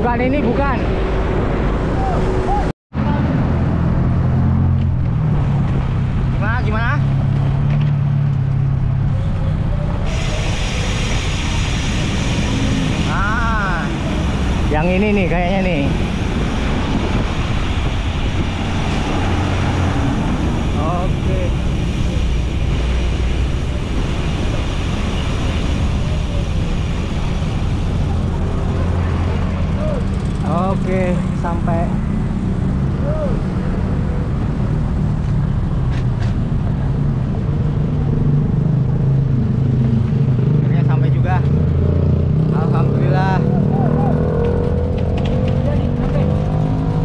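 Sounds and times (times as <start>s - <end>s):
wind rumble on microphone: 0.0s - 43.4s
road traffic noise: 0.0s - 47.0s
vehicle engine humming: 0.0s - 47.0s
bright hiss: 10.1s - 28.3s.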